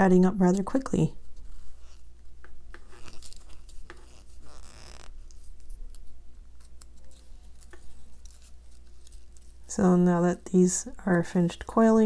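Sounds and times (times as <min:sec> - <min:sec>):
paper strip rustling and clicking: 0:02.7 - 0:09.7.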